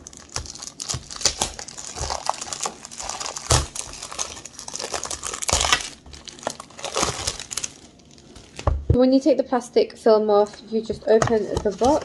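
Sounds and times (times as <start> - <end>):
plastic film tearing and crinkling: 0.0 - 8.7.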